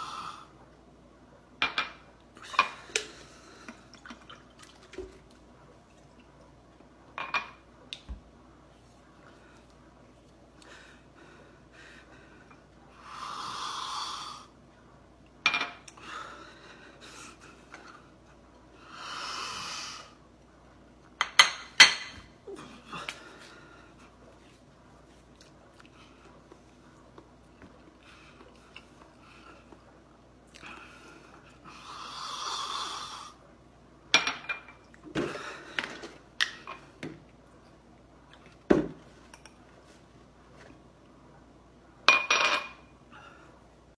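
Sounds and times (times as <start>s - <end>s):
glassware clinking on stone: 42.1s - 42.8s.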